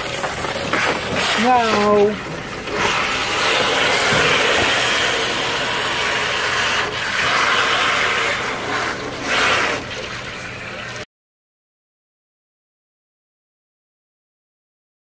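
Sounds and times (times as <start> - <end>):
hose spraying into water: 0.0 - 11.0.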